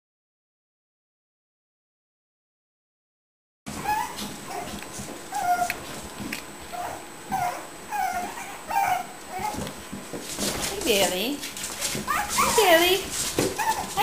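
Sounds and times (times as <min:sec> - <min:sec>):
puppies whimpering and yipping: 0:03.7 - 0:09.8, 0:11.8 - 0:14.0.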